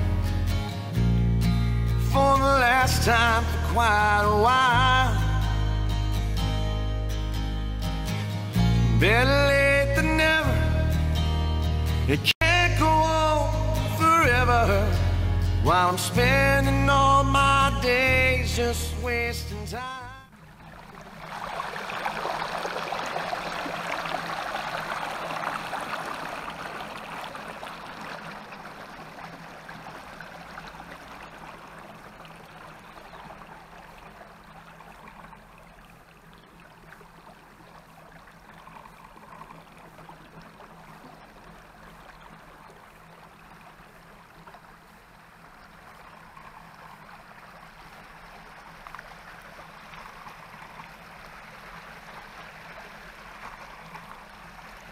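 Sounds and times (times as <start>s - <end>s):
tyres splashing through water: 20.3s - 54.9s.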